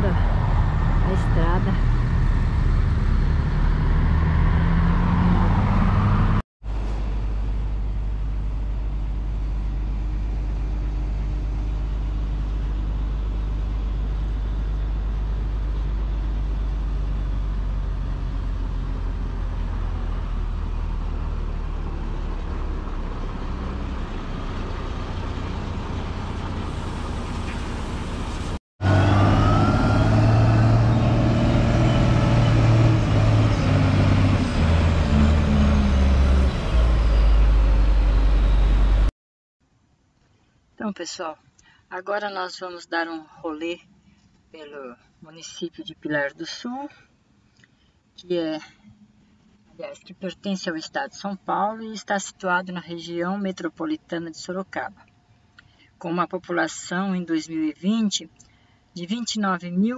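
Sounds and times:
engine whine: 0.0 - 39.1
heavy diesel engines running: 6.7 - 39.1.

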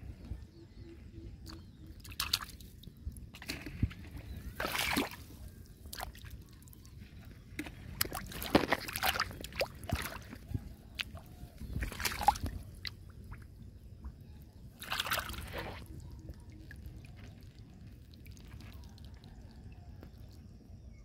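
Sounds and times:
hand splashing in muddy water: 1.5 - 2.6, 3.4 - 6.4, 7.6 - 13.4, 14.8 - 16.0.

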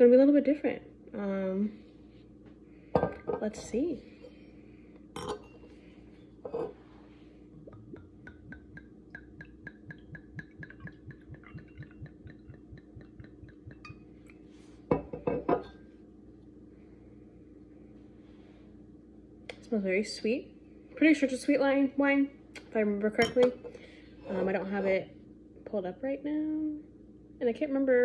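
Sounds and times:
glass clinking: 3.0 - 3.4, 5.2 - 5.7, 6.5 - 6.8, 7.7 - 14.1, 14.9 - 15.8, 23.2 - 23.7
liquid glugging into a glass: 7.6 - 14.1
glass knocks and clinks: 14.9 - 15.8.

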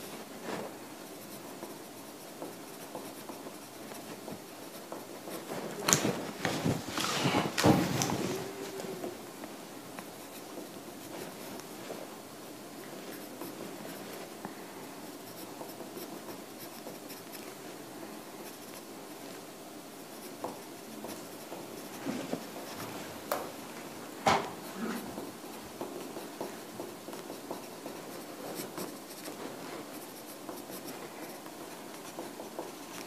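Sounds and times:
pen scratching on paper: 0.5 - 6.4, 10.0 - 11.9, 12.8 - 19.4, 20.0 - 22.8, 24.6 - 33.0.

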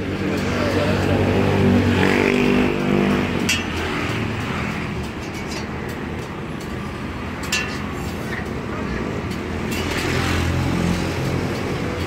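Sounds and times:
street traffic noise: 0.0 - 12.0.

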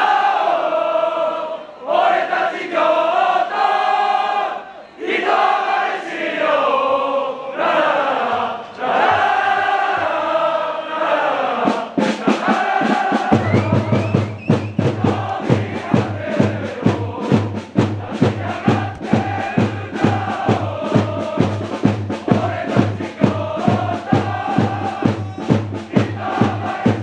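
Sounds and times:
crowd singing a chant: 0.0 - 27.0
fast even beat: 12.0 - 27.0.

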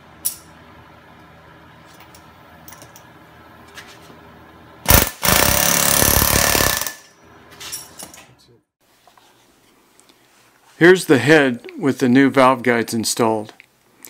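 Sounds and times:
air hammer rapid hammering: 4.9 - 7.1.

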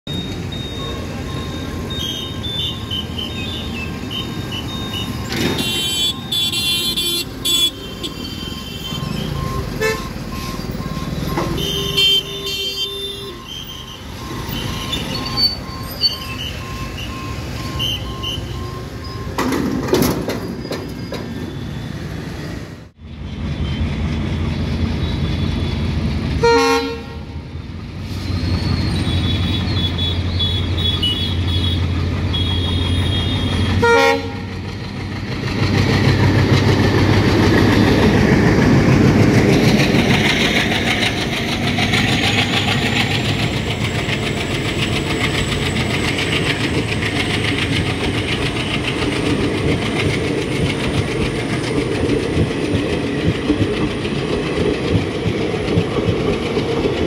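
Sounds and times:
repeating beep: 0.1 - 6.7, 13.4 - 19.4
vehicle horns honking: 2.0 - 10.5, 11.3 - 15.5, 26.4 - 27.4, 29.0 - 34.5
motorbike and rickshaw engines running: 23.1 - 57.0.

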